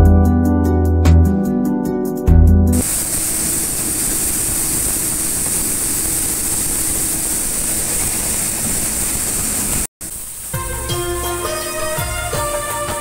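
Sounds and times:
music: 0.0s - 2.8s, 10.5s - 13.0s.

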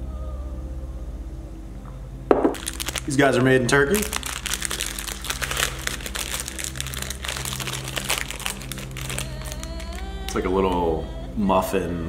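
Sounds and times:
plastic wrapper crinkling: 2.4s - 10.4s.

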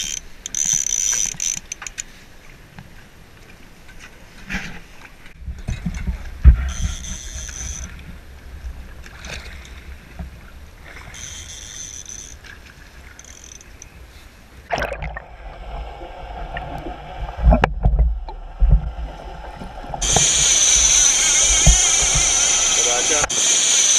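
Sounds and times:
splashing: 14.7s - 22.4s
high buzz: 20.0s - 23.9s.

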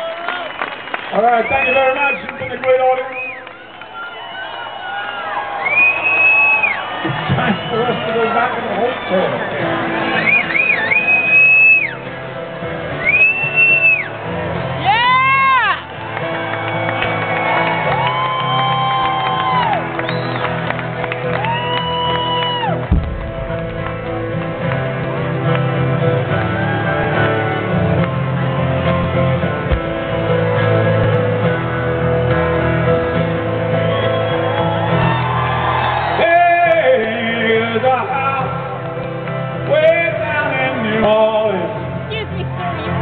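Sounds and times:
live rock band playing: 7.0s - 36.2s
man singing: 36.2s - 38.6s, 39.7s - 41.8s.

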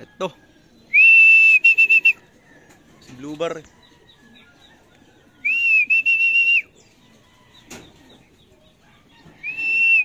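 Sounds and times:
person whistling high notes: 1.0s - 2.2s, 5.5s - 6.6s, 9.6s - 10.0s.

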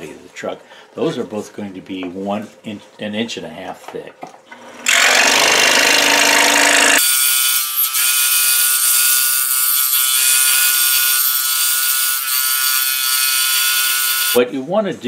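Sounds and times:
scroll saw cutting: 4.8s - 14.4s.

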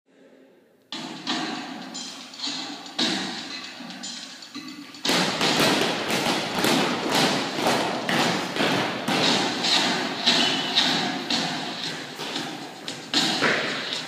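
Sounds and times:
feet stamping on wooden floor: 5.1s - 14.0s.

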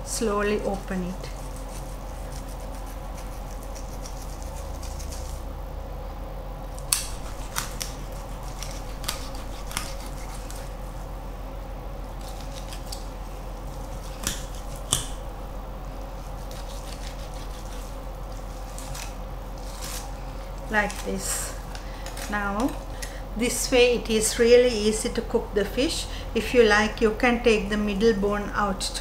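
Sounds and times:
low background hum: 0.0s - 29.0s.

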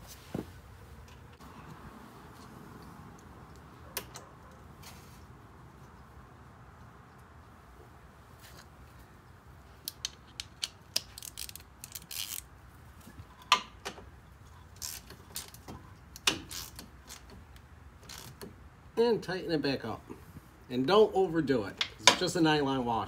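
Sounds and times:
hand ratchet clicking: 9.9s - 12.4s.

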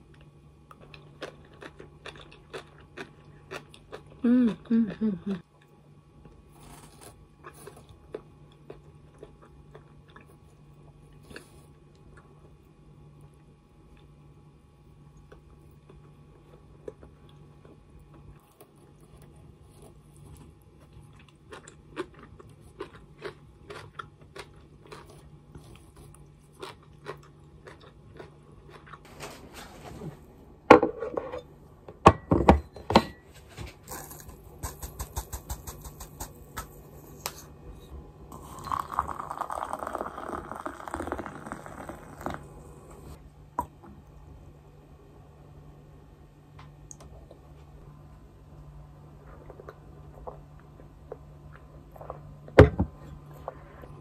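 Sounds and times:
chewing: 0.1s - 4.2s, 15.2s - 29.1s
plate and mug knocking on table: 30.7s - 31.3s, 32.0s - 33.2s
liquid pouring into mug: 38.3s - 43.0s.

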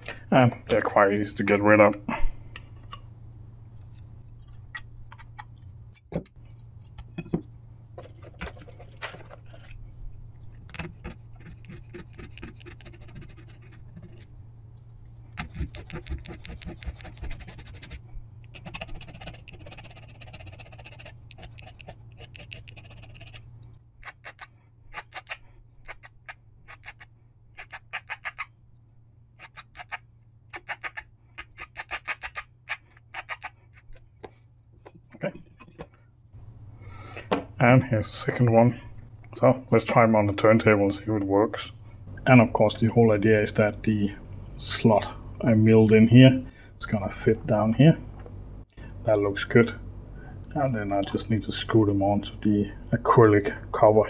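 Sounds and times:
needle file rasping on metal: 11.0s - 14.3s, 15.4s - 28.5s.

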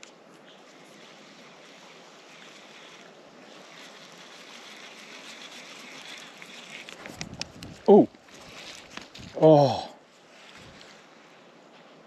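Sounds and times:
creek water rushing: 0.0s - 7.2s
light wind: 0.0s - 12.0s.

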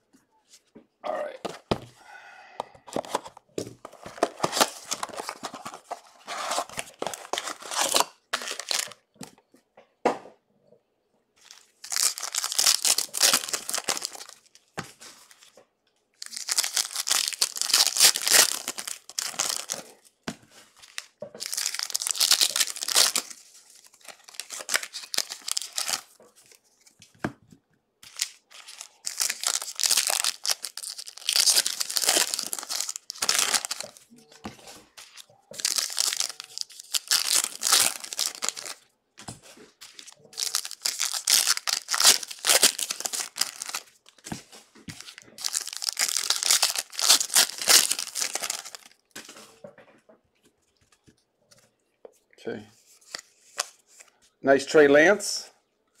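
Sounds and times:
card wrappers tearing and crinkling: 2.9s - 9.0s, 11.4s - 15.6s, 16.2s - 20.1s, 20.7s - 26.9s, 28.0s - 34.1s, 34.9s - 38.8s, 39.8s - 49.4s.

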